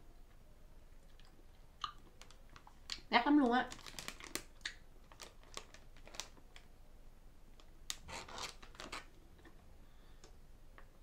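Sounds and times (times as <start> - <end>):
macaron crackling being chewed: 1.0 - 3.1, 3.7 - 6.5
plastic bag rustling: 3.6 - 6.4.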